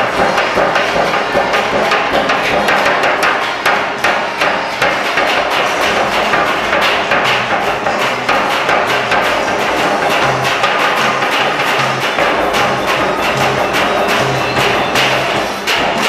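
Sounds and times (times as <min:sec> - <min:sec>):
fast percussive strikes: 0:00.0 - 0:16.0.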